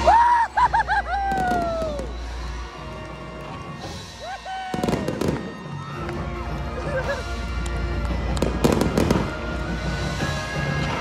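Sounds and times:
fireworks cracks and bangs: 0:01.2 - 0:02.6, 0:04.6 - 0:06.3, 0:06.9 - 0:11.0
marching band playing: 0:01.4 - 0:11.0.

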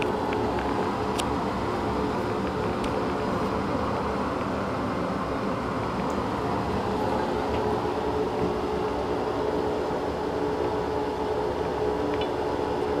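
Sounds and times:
exhaust fan running: 0:00.0 - 0:13.0.

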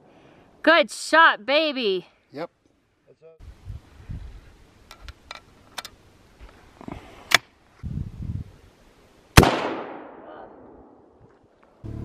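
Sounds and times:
rifle shot with echo: 0:09.4 - 0:11.2.

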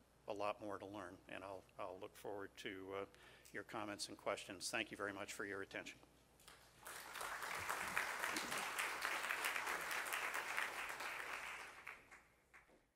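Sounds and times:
audience applauding: 0:06.8 - 0:12.7.

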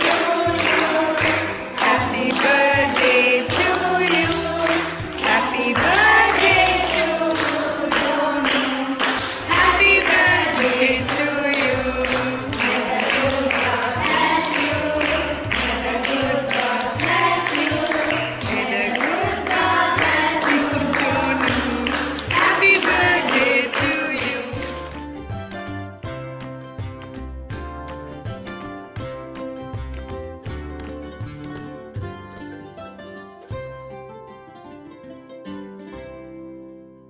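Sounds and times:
group of voices singing: 0:00.0 - 0:24.7
rhythmic hand clapping: 0:00.0 - 0:32.5.

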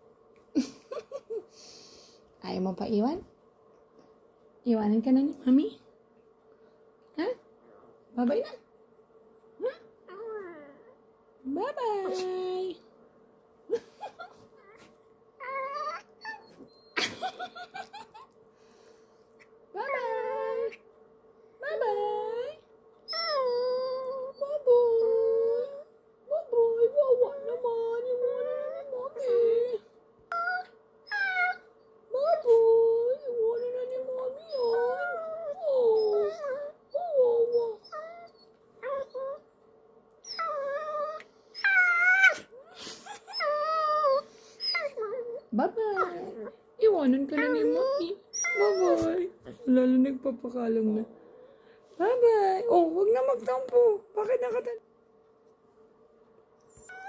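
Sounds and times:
small dog whining and howling: 0:10.1 - 0:11.0, 0:14.6 - 0:17.0, 0:19.8 - 0:20.8, 0:21.9 - 0:39.6, 0:40.2 - 0:46.6, 0:47.3 - 0:49.6, 0:56.7 - 0:57.0
dog yelping: 0:14.6 - 0:17.0, 0:47.4 - 0:49.2.

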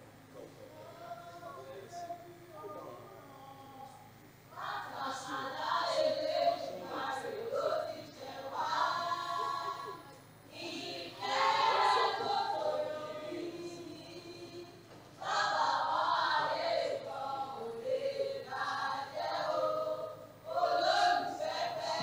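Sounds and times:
choir singing: 0:04.5 - 0:22.0.

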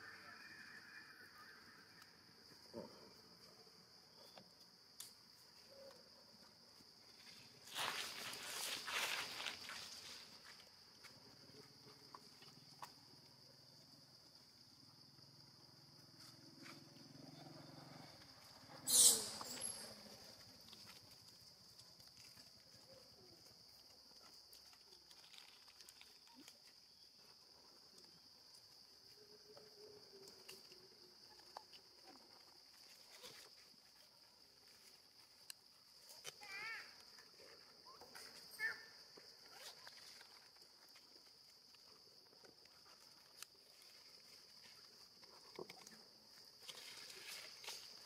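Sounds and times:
faint rustle: 0:07.0 - 0:12.9, 0:39.3 - 0:48.0
faint high-pitched hiss: 0:13.8 - 0:21.0.

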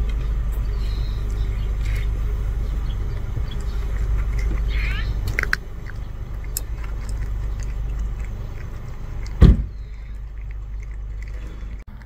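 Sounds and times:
steady low rumble: 0:00.0 - 0:12.0
cat crunching dry kibble: 0:01.3 - 0:12.0
loud thump: 0:09.4 - 0:09.8.

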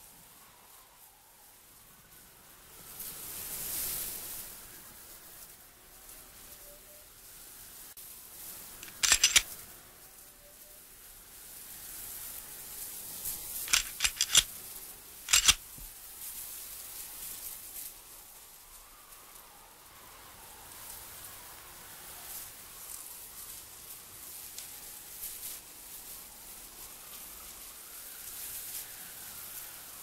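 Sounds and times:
faint steady hiss: 0:00.0 - 0:30.0
sharp clicks: 0:08.8 - 0:09.5, 0:13.7 - 0:14.5, 0:15.3 - 0:15.6.

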